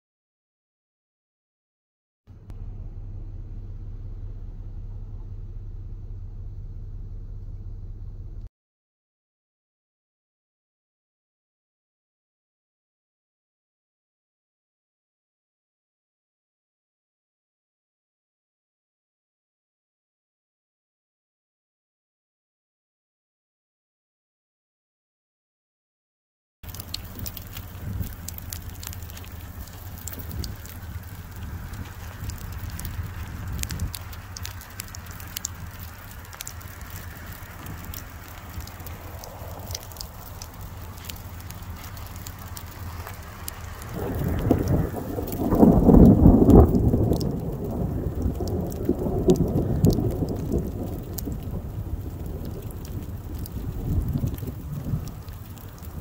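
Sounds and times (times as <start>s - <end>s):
steady low rumble: 2.3s - 8.5s, 26.6s - 56.0s
thunder rumbling: 26.6s - 56.0s.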